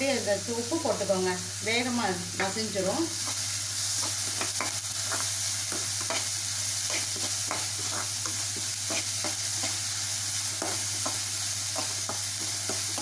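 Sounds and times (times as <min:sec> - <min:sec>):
onions sizzling in hot oil: 0:00.0 - 0:13.0
spoon scraping metal pan: 0:06.9 - 0:09.8.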